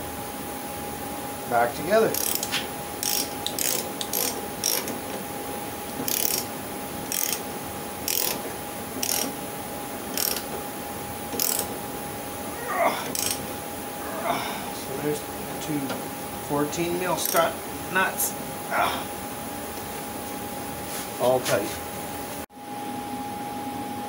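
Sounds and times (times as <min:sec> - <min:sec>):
ratchet wrench clicking: 0:02.1 - 0:05.0, 0:06.1 - 0:06.5, 0:07.1 - 0:07.4, 0:08.0 - 0:08.4, 0:09.0 - 0:09.3, 0:10.1 - 0:10.5, 0:11.4 - 0:11.7, 0:13.1 - 0:13.4, 0:17.2 - 0:17.5.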